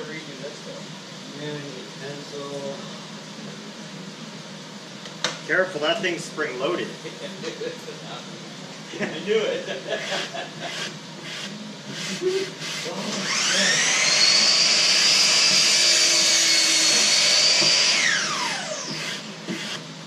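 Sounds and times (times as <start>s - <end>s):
power tool motor whine: 10.0s - 20.0s.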